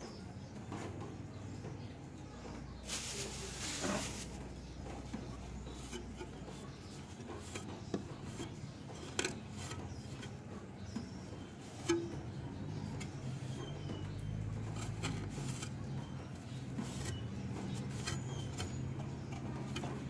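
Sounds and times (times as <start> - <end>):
cloth wiping metal and plastic: 2.8 - 10.4, 11.6 - 20.0.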